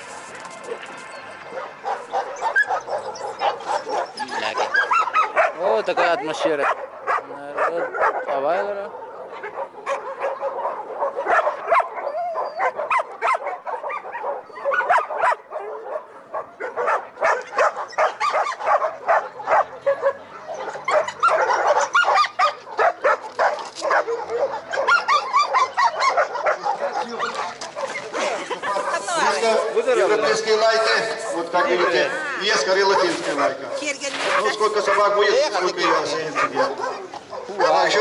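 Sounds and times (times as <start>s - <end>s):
many dogs barking and yipping: 0.0s - 38.0s.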